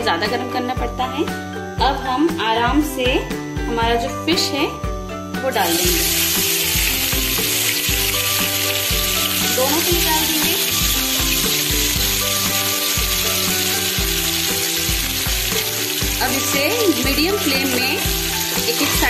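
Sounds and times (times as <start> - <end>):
soft background music: 0.0 - 19.0
fish sizzling in hot oil: 5.5 - 19.0.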